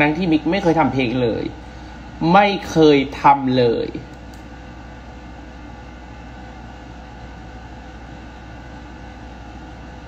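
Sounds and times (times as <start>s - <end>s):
background hum and hiss: 0.0s - 10.0s.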